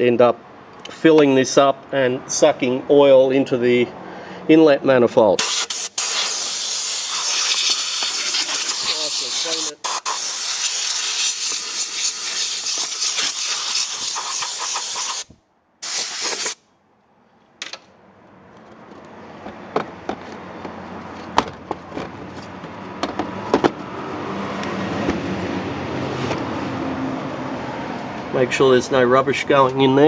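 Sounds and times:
compressed air blow gun hissing: 0:05.4 - 0:16.6.

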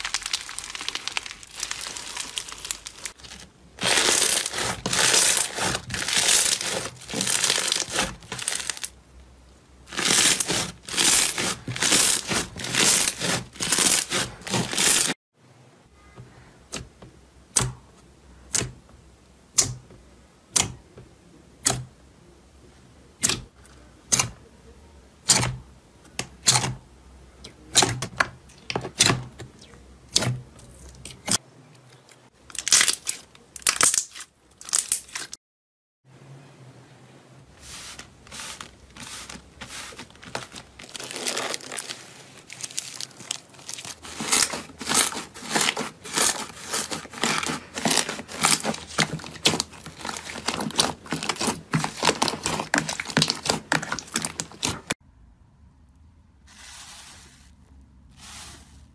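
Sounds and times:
foam slime crunching: 0:00.0 - 0:09.0, 0:09.8 - 0:15.2, 0:32.5 - 0:35.4, 0:37.6 - 0:55.0.

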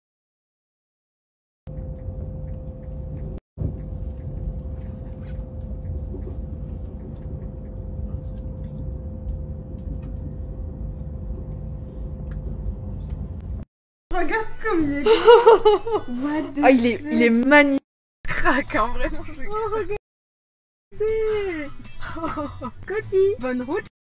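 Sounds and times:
train rumble inside carriage: 0:01.7 - 0:13.7.

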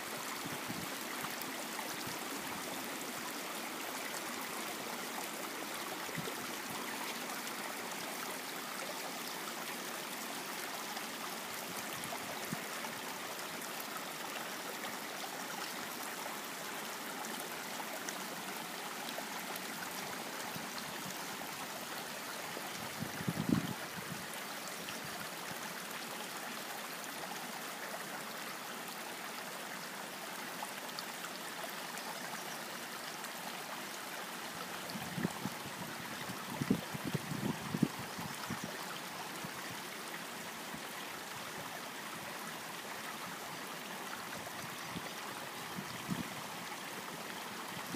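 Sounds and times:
creek running over rocks: 0:00.0 - 0:47.9
wind gust on microphone: 0:23.0 - 0:24.2, 0:34.9 - 0:38.7.

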